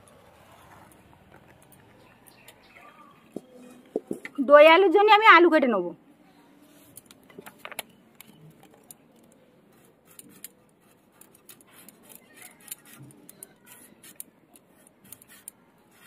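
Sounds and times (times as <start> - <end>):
potato peeling scraping: 8.8 - 16.0.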